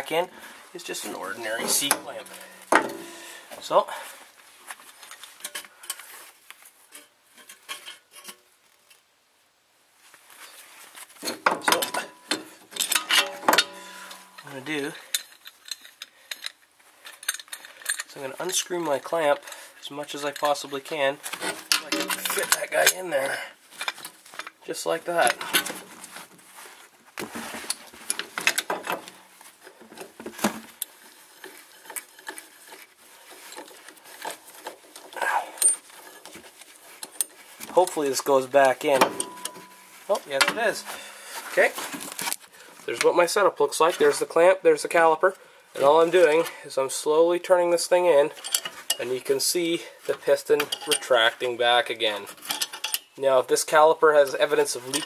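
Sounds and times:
metal hand tools clinking: 1.0 - 3.5, 11.2 - 18.7, 21.7 - 23.1, 39.0 - 41.0, 48.3 - 49.0, 50.5 - 51.2, 52.3 - 53.2
metal clicks and knocks: 1.6 - 3.2, 11.3 - 14.5, 21.6 - 23.0.

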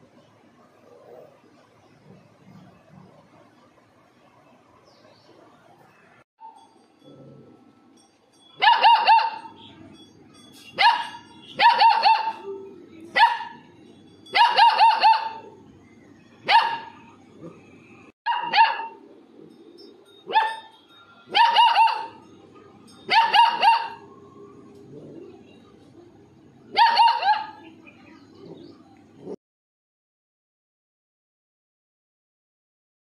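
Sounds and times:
puppy barking: 8.6 - 9.5, 10.8 - 12.5, 13.1 - 13.6, 14.3 - 15.5, 16.4 - 17.1, 18.3 - 19.0, 20.3 - 20.7, 21.3 - 22.2, 23.0 - 24.1, 26.7 - 27.6.

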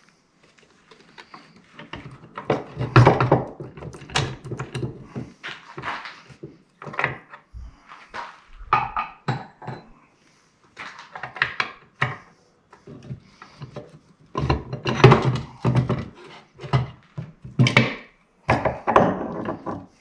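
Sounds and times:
metal parts clinking and clunking: 14.4 - 18.1.

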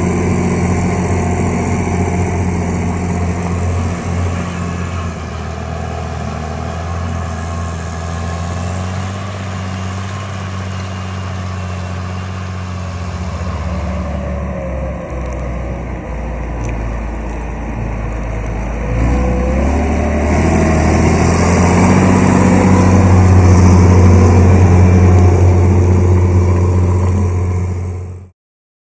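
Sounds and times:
tractor diesel engine running: 0.0 - 28.3
wavering whine: 12.8 - 28.3.

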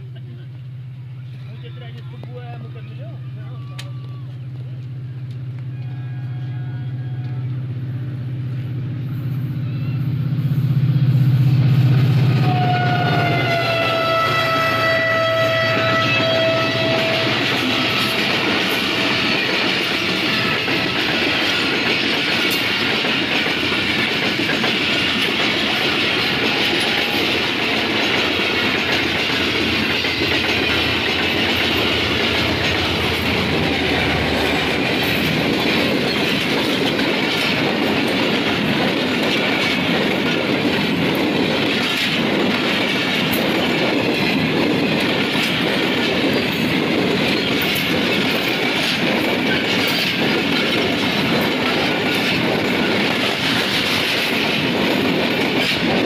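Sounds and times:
train coaches rumbling: 0.0 - 56.0
wheels clacking over rail joints: 12.2 - 56.0.

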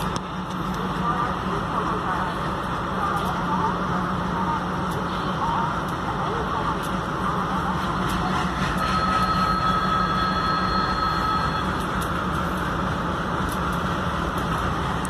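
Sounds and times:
diesel locomotives rumbling: 0.0 - 15.0
high-pitched tone: 8.8 - 11.9.

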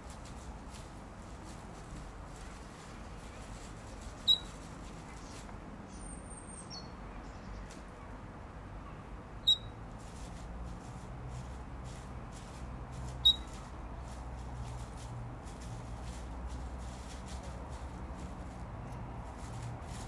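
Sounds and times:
sharp bird chirps: 9.4 - 9.7, 13.2 - 13.5.

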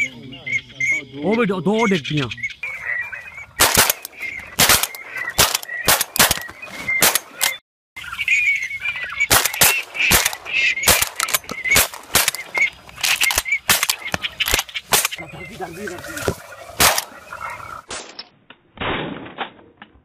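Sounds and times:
rapid shotgun fire: 3.6 - 7.4, 9.3 - 12.6, 16.8 - 17.1.

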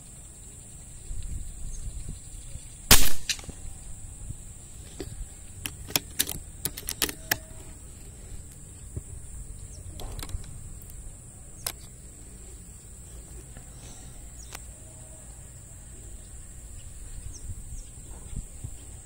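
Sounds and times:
steady high hiss: 0.0 - 19.0
rifle shot: 2.9 - 3.6
sharp clicks and knocks: 4.8 - 7.7, 9.8 - 11.0, 11.6 - 12.0.

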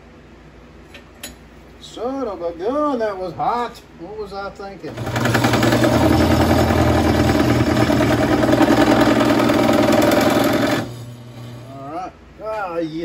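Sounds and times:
drill press drilling steel: 4.9 - 11.8.

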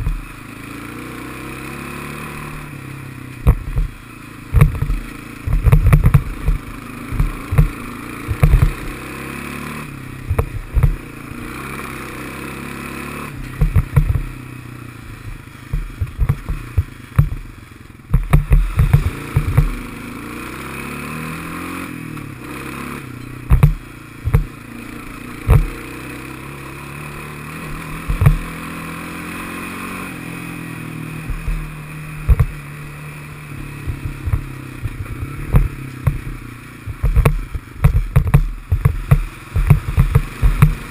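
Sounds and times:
atv engine revving: 0.0 - 40.9
thumps and clattering over rocks: 3.4 - 4.0, 4.6 - 9.0, 10.3 - 11.0, 13.5 - 14.3, 15.3 - 17.5, 18.1 - 19.8, 23.5 - 24.6, 25.5 - 25.8, 28.0 - 28.6, 31.3 - 32.7, 33.9 - 40.9.

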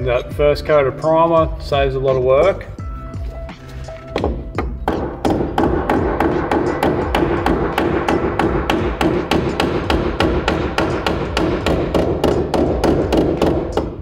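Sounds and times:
hammer striking steel: 4.2 - 14.0.

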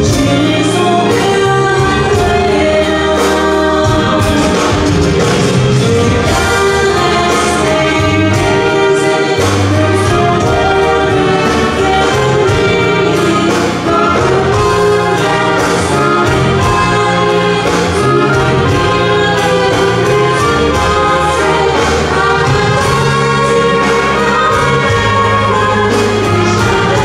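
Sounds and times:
keyboard and accordion dance music: 0.0 - 27.0.

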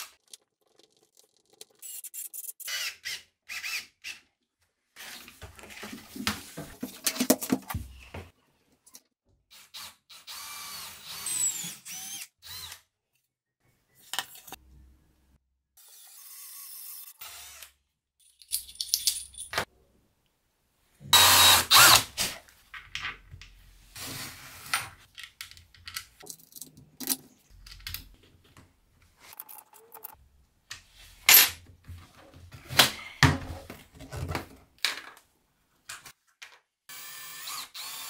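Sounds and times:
electric drill bursts: 21.2 - 22.1, 36.9 - 38.0.

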